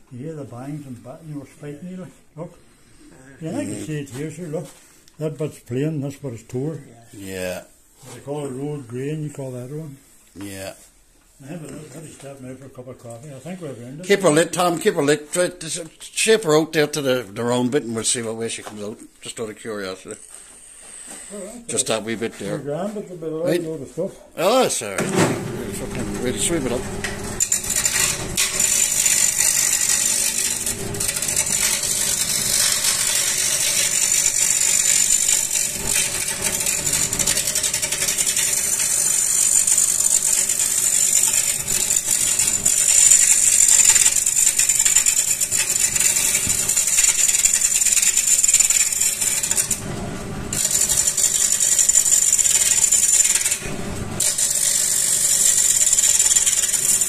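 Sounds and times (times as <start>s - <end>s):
lathe tool cutting wood: 25.4s - 57.0s.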